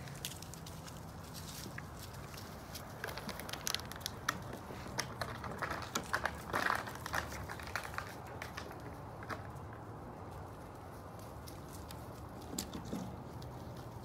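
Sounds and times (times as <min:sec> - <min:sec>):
footsteps crunching dry straw: 0:00.0 - 0:03.8.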